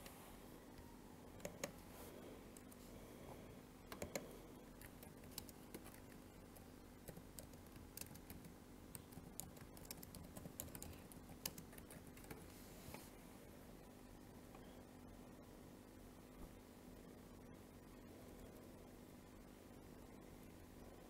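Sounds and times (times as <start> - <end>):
typing on keyboard: 1.4 - 1.7, 3.9 - 12.4.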